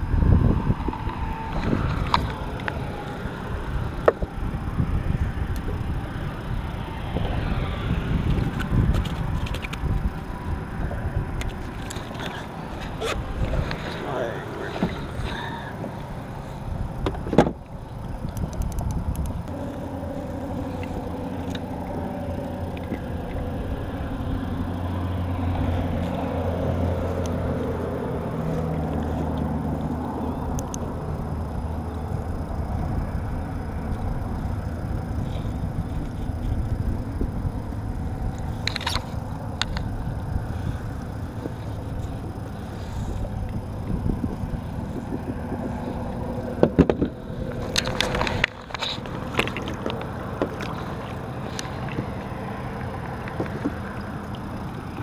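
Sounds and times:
vehicle passing: 0:00.0 - 0:17.0, 0:19.4 - 0:55.0
road traffic rumble: 0:00.0 - 0:55.0
fishing tackle clicks: 0:08.2 - 0:10.0, 0:17.6 - 0:19.9, 0:20.7 - 0:21.9, 0:38.3 - 0:40.0, 0:46.9 - 0:52.3.

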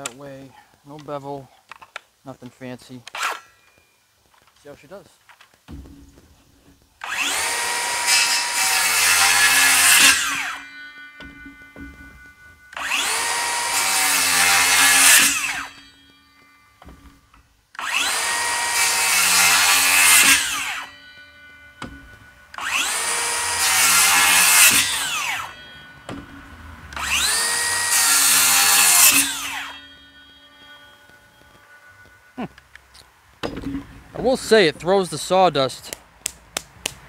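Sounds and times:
circular saw cutting wood: 0:07.0 - 0:32.4.

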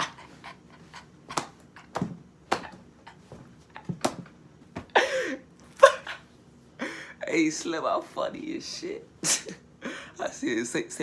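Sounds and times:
slaps and knocks: 0:01.3 - 0:02.8, 0:03.8 - 0:04.9.

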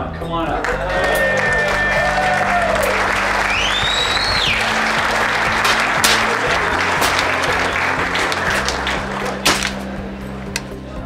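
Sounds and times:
background music with steady beat: 0:00.0 - 0:11.0
audience applauding: 0:00.6 - 0:10.7
high whistle: 0:03.4 - 0:04.7.

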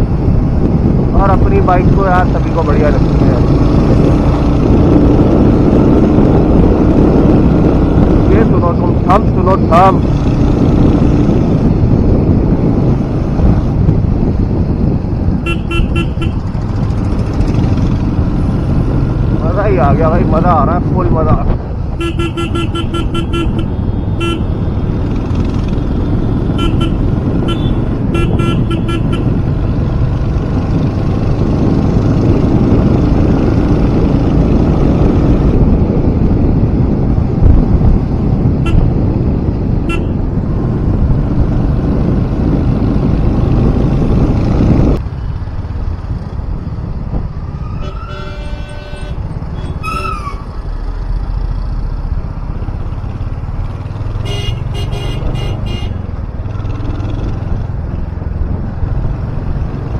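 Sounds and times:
traffic: 0:00.0 - 0:59.9
wind rush: 0:00.0 - 0:59.9
motorcycle engine running: 0:00.1 - 0:47.6, 0:51.6 - 0:59.9
vehicle horns tooting: 0:15.4 - 0:16.5, 0:22.0 - 0:24.5, 0:26.6 - 0:29.3, 0:39.9 - 0:40.2, 0:47.8 - 0:50.4, 0:54.2 - 0:56.0.

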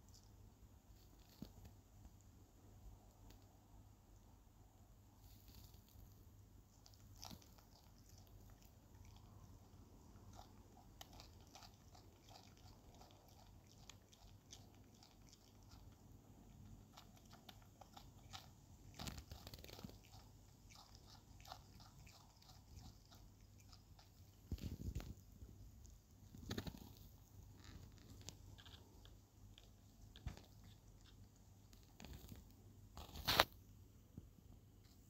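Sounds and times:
animal crunching capsicum: 0:06.7 - 0:33.5.

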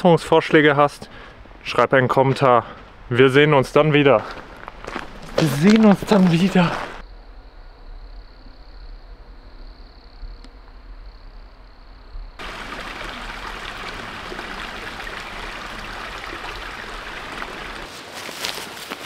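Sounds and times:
stream running over stones: 0:12.4 - 0:17.9.

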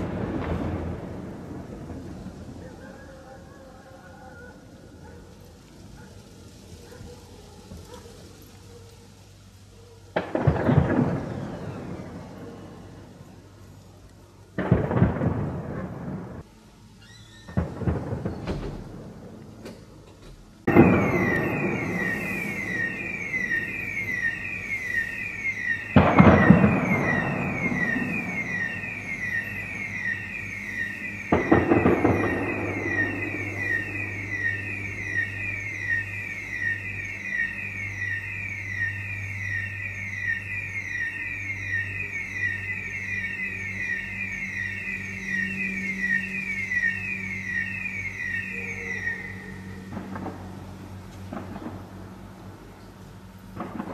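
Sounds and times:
siren wailing: 0:00.0 - 0:06.8, 0:10.2 - 0:13.8, 0:14.6 - 0:19.0, 0:20.6 - 0:53.9
gunshots with echo: 0:25.6 - 0:35.3.

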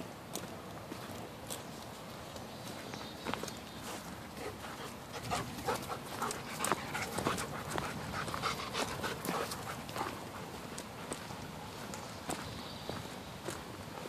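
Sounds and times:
footsteps on dirt trail: 0:00.0 - 0:14.0
dog panting: 0:04.2 - 0:12.0.

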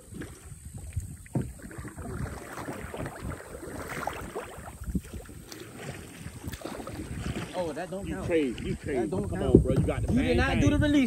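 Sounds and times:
water splashing around kayak: 0:00.0 - 0:11.0
knocks and clicks on hull: 0:00.1 - 0:07.7, 0:08.3 - 0:10.5.

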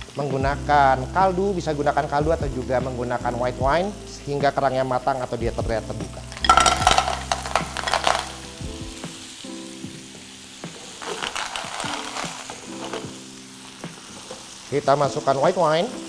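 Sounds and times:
sizzling in oil: 0:00.0 - 0:16.0
clams clattering into a pan: 0:06.4 - 0:08.4, 0:10.8 - 0:13.2.

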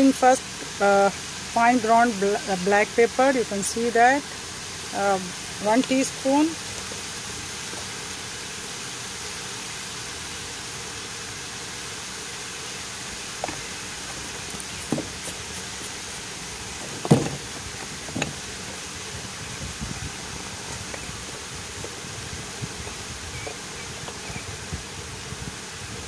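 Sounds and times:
squash sizzling in oil: 0:00.0 - 0:25.8
short knocks: 0:13.4 - 0:16.0, 0:16.8 - 0:18.8.

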